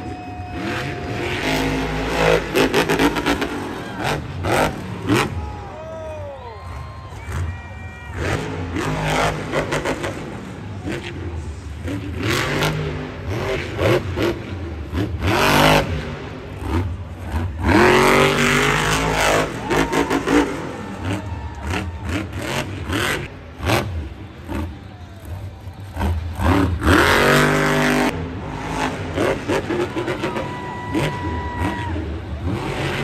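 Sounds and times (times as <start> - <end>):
monster truck engine revving: 0.0 - 5.9, 6.6 - 33.0
truck banging over jumps: 8.2 - 33.0.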